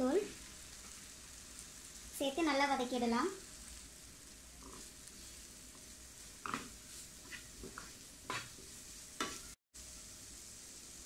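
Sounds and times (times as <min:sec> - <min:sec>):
faint frying sizzle: 0:00.0 - 0:11.0
wooden spatula scraping a pan: 0:03.5 - 0:09.6.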